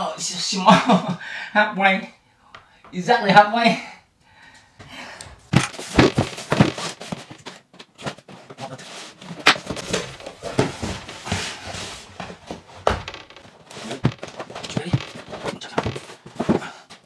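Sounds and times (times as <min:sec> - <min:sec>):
cardboard rustling: 0:05.6 - 0:17.0.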